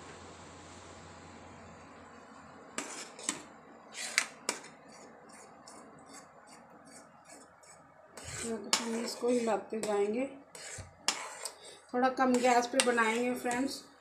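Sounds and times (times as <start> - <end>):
spoon scraping steel pot: 2.8 - 13.8.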